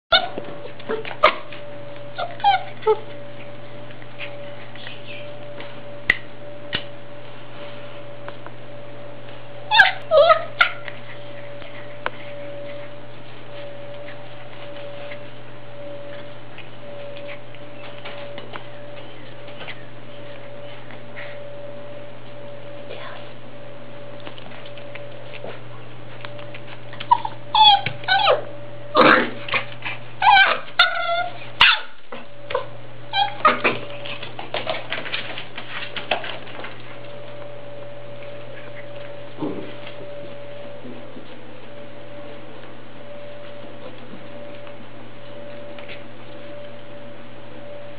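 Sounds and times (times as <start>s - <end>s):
puppy yipping: 0.1s - 1.5s, 2.2s - 3.0s, 9.7s - 10.9s, 27.0s - 28.5s, 30.2s - 33.7s
electrical hum: 0.1s - 47.9s.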